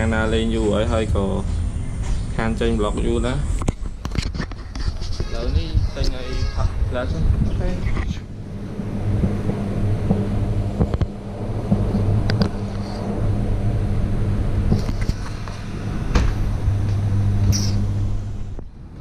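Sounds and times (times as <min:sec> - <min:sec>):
electrical machine hum: 0:05.2 - 0:19.0.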